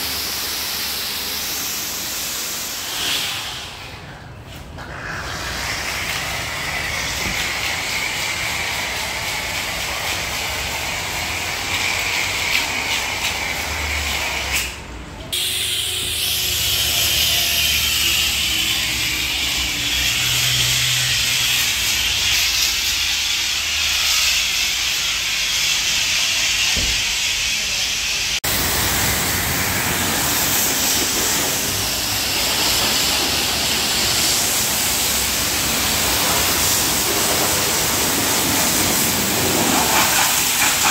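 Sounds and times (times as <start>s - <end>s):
pressure washer spray hissing: 0.0s - 3.9s, 5.0s - 14.6s, 15.4s - 40.9s.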